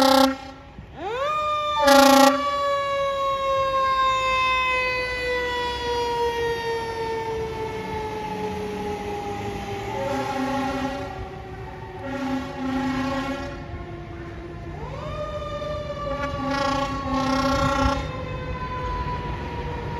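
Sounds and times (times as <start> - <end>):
air horn blast: 0.0 - 0.7, 1.8 - 2.5, 9.9 - 11.3, 12.0 - 13.7, 16.1 - 18.1
mechanical siren winding down: 0.0 - 12.3.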